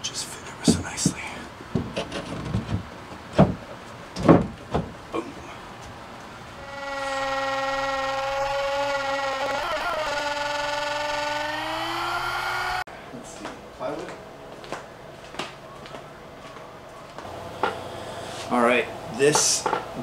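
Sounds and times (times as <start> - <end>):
router high whine: 6.6 - 12.9.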